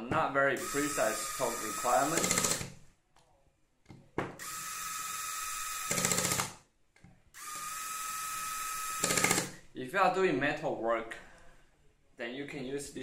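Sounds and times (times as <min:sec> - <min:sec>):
electric screwdriver motor whine: 0:04.4 - 0:06.4, 0:07.4 - 0:09.5.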